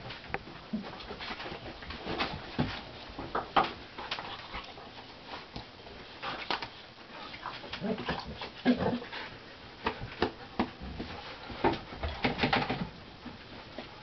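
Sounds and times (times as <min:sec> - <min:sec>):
dogs growling playfully: 0:07.3 - 0:09.4.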